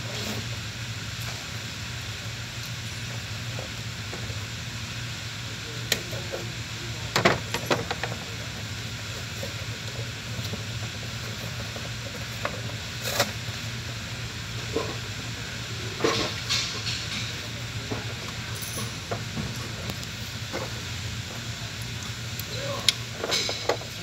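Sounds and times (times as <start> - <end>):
light clicks and clinks: 18.6 - 19.2.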